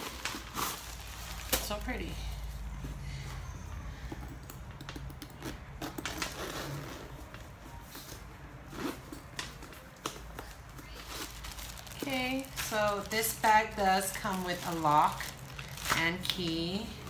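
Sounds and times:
packing paper rustling: 0:00.0 - 0:02.0, 0:10.0 - 0:17.0.

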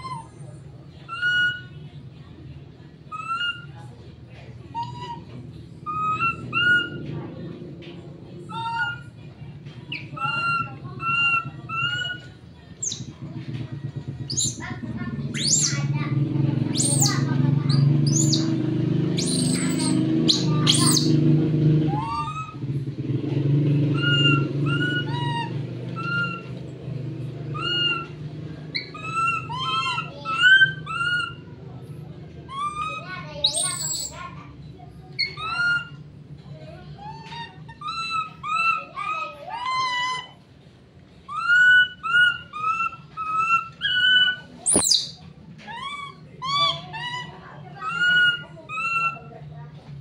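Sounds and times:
baby monkey crying: 0:00.0 - 0:00.4, 0:05.9 - 0:07.0, 0:08.5 - 0:09.1, 0:09.9 - 0:13.0, 0:14.2 - 0:14.6, 0:15.2 - 0:15.9, 0:16.7 - 0:21.2, 0:21.9 - 0:22.6, 0:23.9 - 0:26.6, 0:27.5 - 0:31.5, 0:32.5 - 0:34.2, 0:35.2 - 0:36.0, 0:37.0 - 0:40.4, 0:41.3 - 0:49.3.

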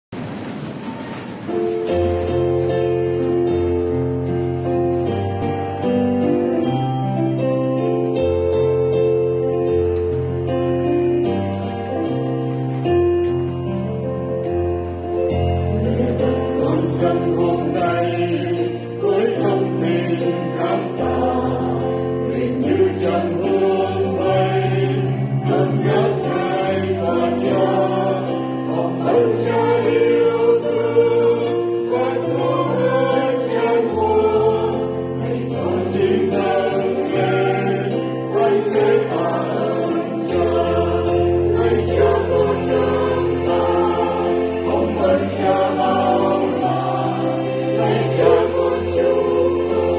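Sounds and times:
choir singing in harmony: 0:13.7 - 0:49.9.

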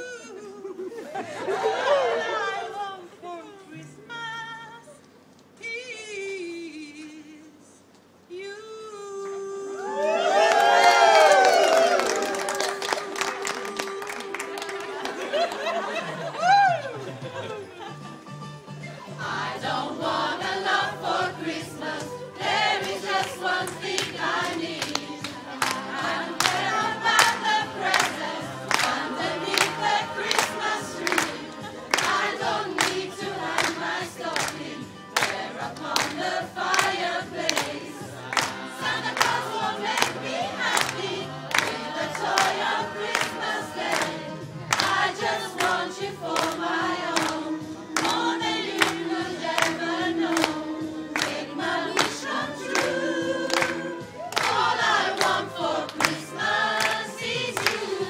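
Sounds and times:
group singing a carol: 0:01.1 - 0:03.1, 0:19.0 - 0:58.0.

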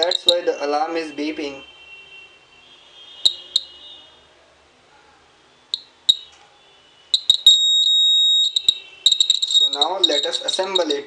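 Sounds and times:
alarm buzzer beeping: 0:03.2 - 0:04.0, 0:05.7 - 0:06.3, 0:06.9 - 0:11.0.

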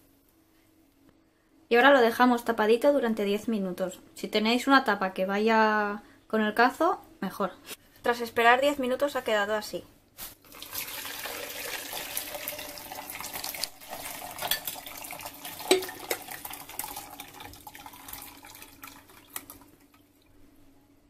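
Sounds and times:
liquid pouring through sieve: 0:10.4 - 0:20.3.

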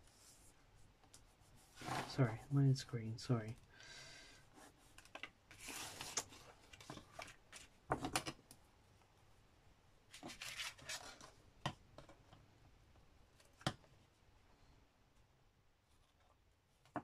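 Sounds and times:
paper rustling: 0:05.0 - 0:07.8, 0:10.1 - 0:11.3.

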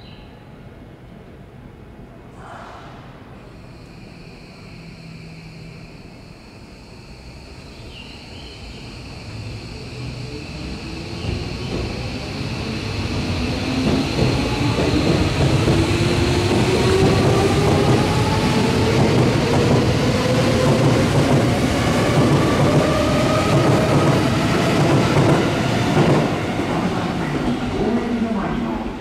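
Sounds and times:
electric train motor whine: 0:03.6 - 0:26.6
train wheels rumbling on rails: 0:09.0 - 0:29.0.

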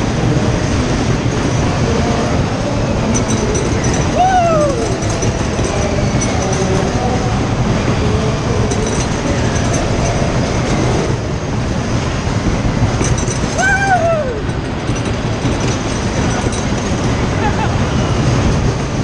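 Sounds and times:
fairground ride rumbling and rattling: 0:00.0 - 0:19.0
rider whooping: 0:03.2 - 0:06.7, 0:13.4 - 0:14.6, 0:17.2 - 0:18.4.

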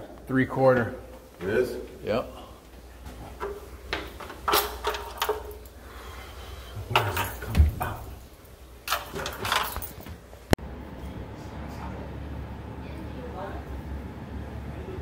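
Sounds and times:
knocks scrapes and rattles: 0:03.3 - 0:08.3.

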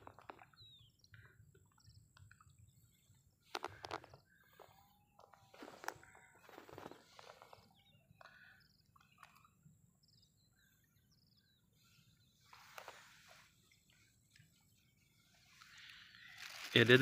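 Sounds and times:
soft rustle: 0:11.8 - 0:17.0.

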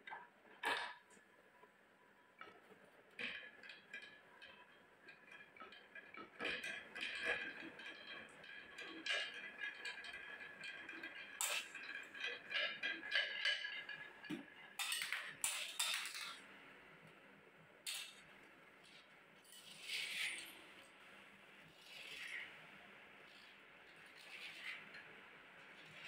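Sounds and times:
marbles clacking onto floor: 0:14.8 - 0:16.4
toy truck scraping on floor: 0:19.5 - 0:20.6.

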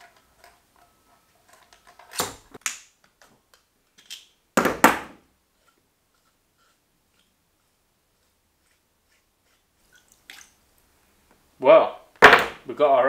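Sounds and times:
tools clattering on concrete floor: 0:12.2 - 0:12.6.

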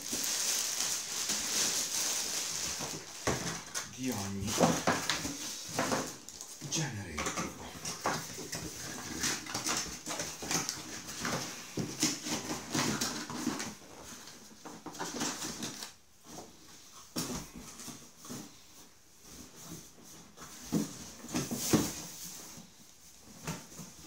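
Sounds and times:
cardboard scraping and rustling: 0:17.6 - 0:24.0.

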